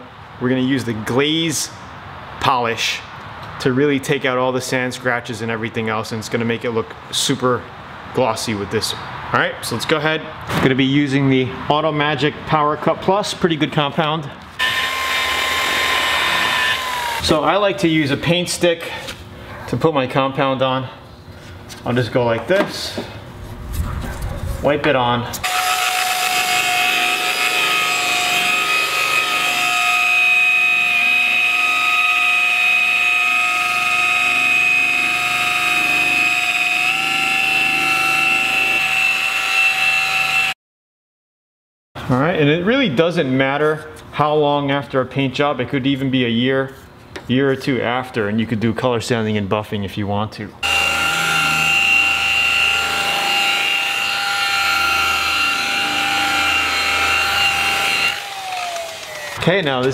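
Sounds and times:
rotary buffer motor whine: 50.6s - 59.4s.

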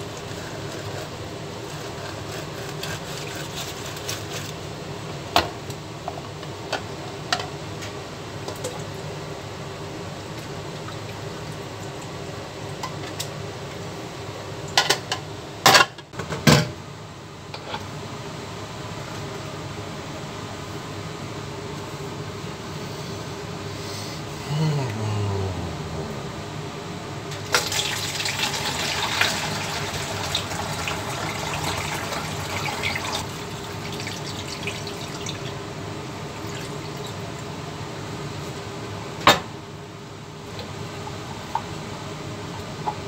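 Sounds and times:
machinery hum: 16.9s - 42.9s.

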